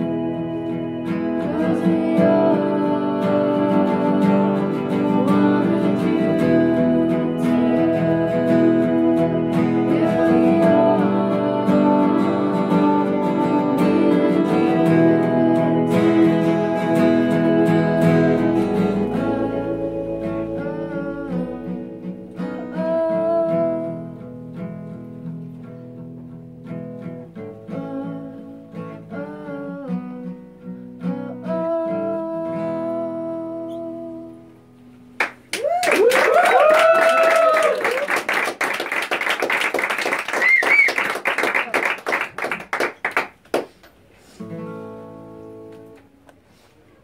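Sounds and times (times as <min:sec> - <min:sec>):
woman singing: 0:00.0 - 0:24.2, 0:27.5 - 0:30.4, 0:31.0 - 0:34.5
acoustic guitar strumming: 0:00.0 - 0:35.5, 0:42.0 - 0:46.5
audience clapping and cheering: 0:35.2 - 0:43.8.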